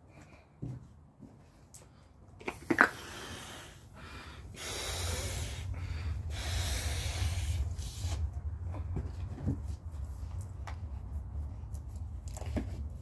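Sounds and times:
breaths blowing into balloon: 2.6 - 8.4
person drawing breath: 2.8 - 8.3.

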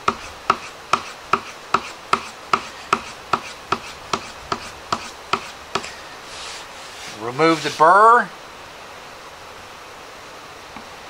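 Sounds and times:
blade stropping on leather: 0.1 - 8.0.

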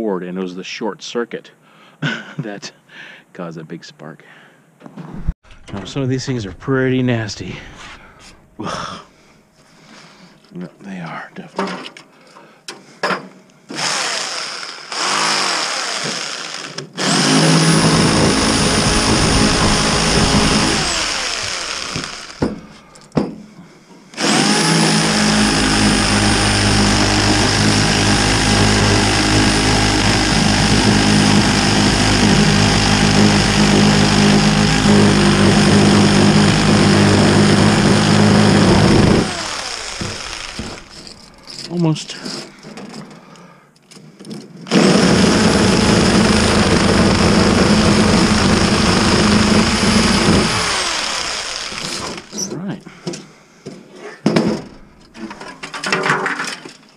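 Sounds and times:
reciprocating saw running: 13.7 - 22.5, 24.2 - 41.4, 44.7 - 52.6.

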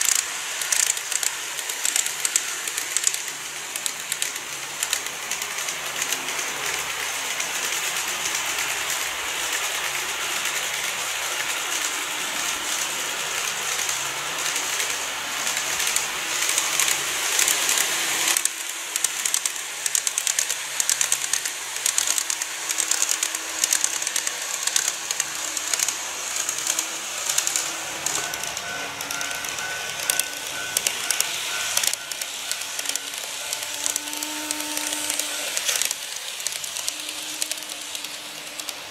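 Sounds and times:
model train whirring hiss: 0.0 - 38.9
wheels clicking over rail joints: 0.0 - 38.9.

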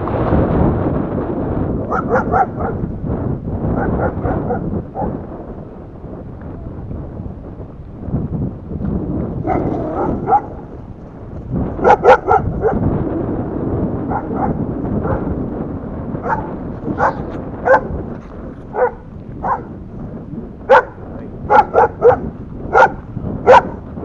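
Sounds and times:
dog barking: 1.9 - 2.8, 3.7 - 5.2, 9.4 - 10.7, 11.8 - 12.8, 14.0 - 15.4, 16.2 - 18.0, 18.7 - 19.8, 20.7 - 23.8.

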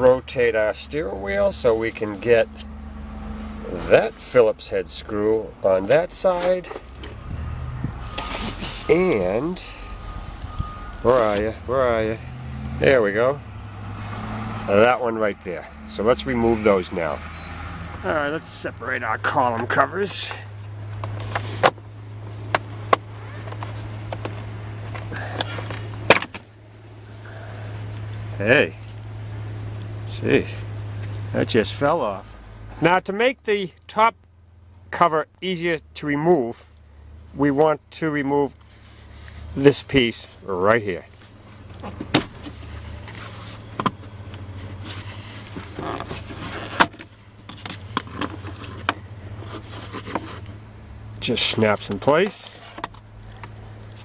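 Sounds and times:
steady low hum: 0.0 - 32.8
plastic rubbing: 44.5 - 50.5.

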